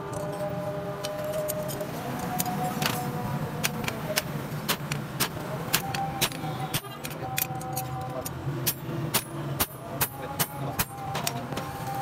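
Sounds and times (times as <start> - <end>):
hammer striking metal on anvil: 8.6 - 11.0.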